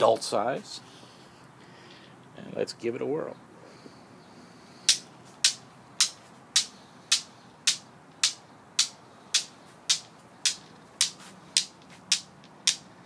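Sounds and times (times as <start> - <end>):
steel balls clacking: 4.9 - 13.0.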